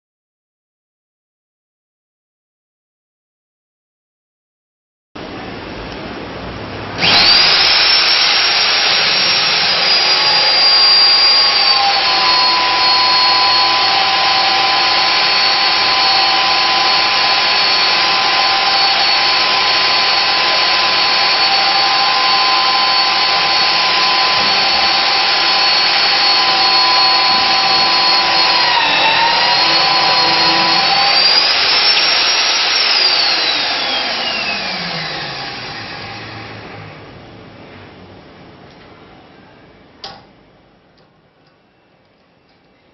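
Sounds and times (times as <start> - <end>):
magnetic drill motor whine: 7.0 - 36.9.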